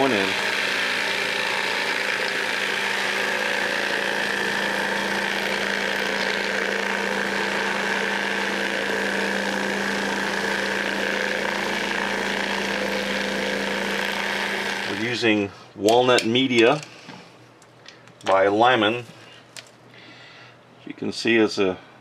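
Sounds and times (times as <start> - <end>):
tumbler motor hum: 0.0 - 15.3.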